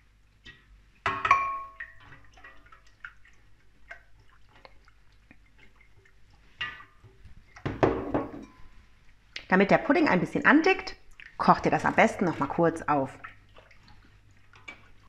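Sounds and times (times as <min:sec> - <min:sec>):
liquid dripping and whisking: 0:00.0 - 0:15.0
glass jug clinking on steel pot: 0:01.1 - 0:02.0, 0:07.6 - 0:08.7.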